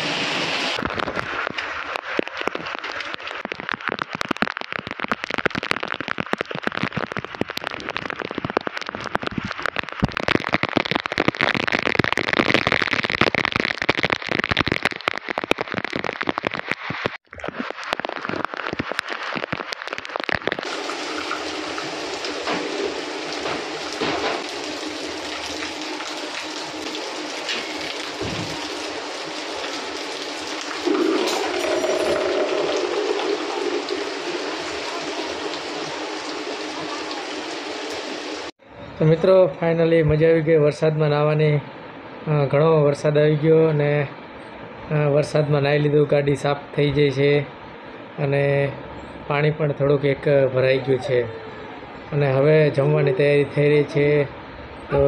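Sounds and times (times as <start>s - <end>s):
heavy rain pouring: 0.0s - 38.5s.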